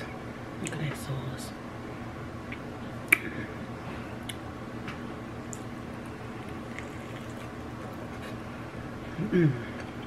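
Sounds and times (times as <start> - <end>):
steady low hum: 0.0 - 10.0
person eating wet smacks: 5.5 - 8.3.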